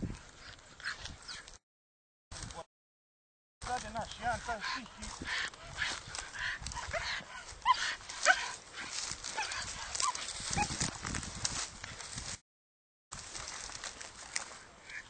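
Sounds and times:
dog barking in high yelps: 6.8s - 8.6s, 9.3s - 10.8s.

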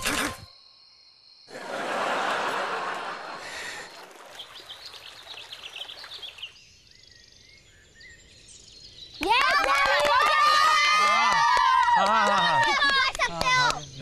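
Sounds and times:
birds chirping: 2.2s - 10.3s, 12.3s - 14.0s.

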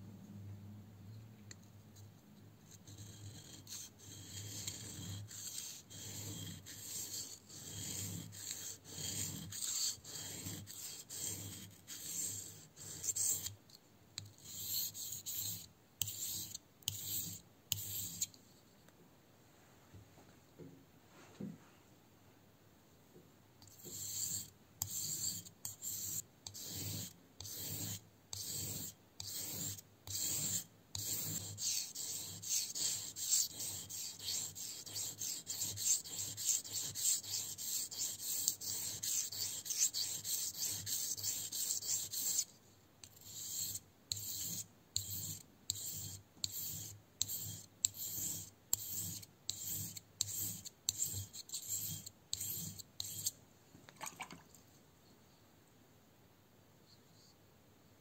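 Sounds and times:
knife scraping on whetstone: 3.0s - 13.5s, 23.7s - 42.5s, 43.2s - 53.3s.

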